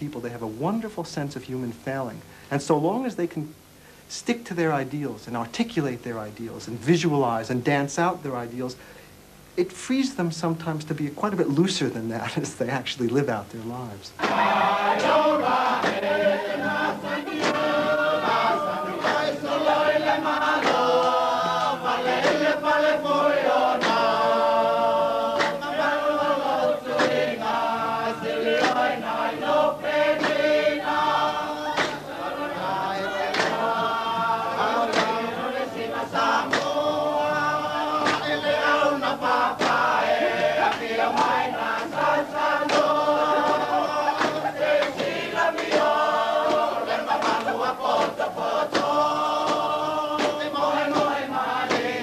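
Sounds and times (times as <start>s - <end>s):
group singing in harmony: 14.2s - 52.0s.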